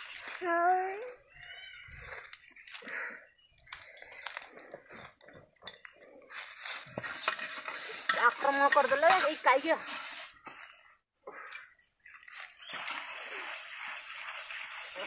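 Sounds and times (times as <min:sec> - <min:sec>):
dry leaves rustling and crackling: 0:00.0 - 0:02.4, 0:06.3 - 0:10.8, 0:12.0 - 0:15.0
person speaking: 0:08.1 - 0:10.0.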